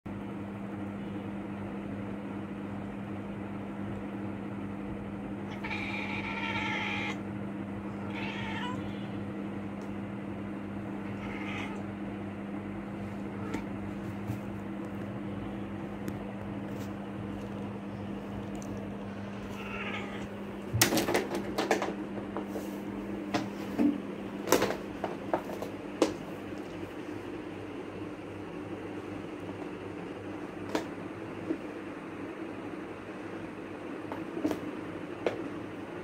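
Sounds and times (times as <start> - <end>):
low electrical hum: 0.1 - 36.0
cat meowing: 5.5 - 7.2, 7.9 - 9.2, 11.0 - 11.9, 13.3 - 13.8, 19.4 - 20.4.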